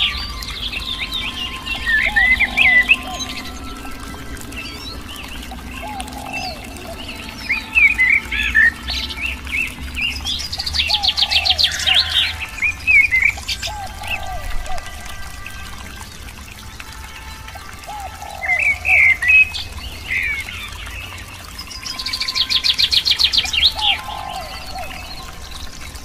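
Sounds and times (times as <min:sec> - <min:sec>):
bird trill: 0:00.0 - 0:14.4
running water: 0:00.0 - 0:26.0
songbirds chirping: 0:00.0 - 0:26.0.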